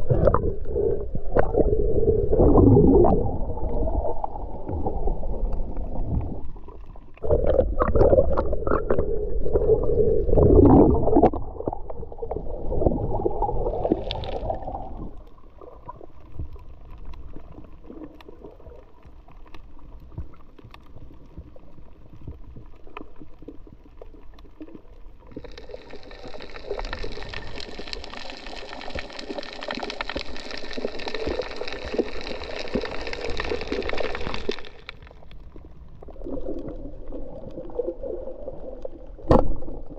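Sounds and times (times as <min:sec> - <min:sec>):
muffled underwater gurgling: 0:00.0 - 0:16.2.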